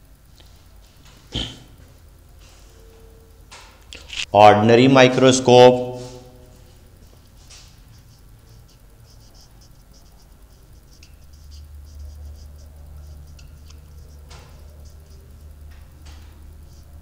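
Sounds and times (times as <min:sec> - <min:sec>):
marker squeaking on whiteboard: 0:07.0 - 0:17.0.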